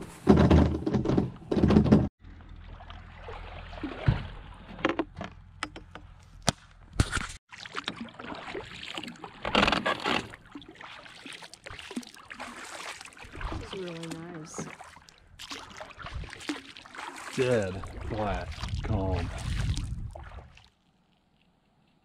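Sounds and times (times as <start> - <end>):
paddle swishing and dripping in water: 2.2 - 5.3, 7.4 - 21.5.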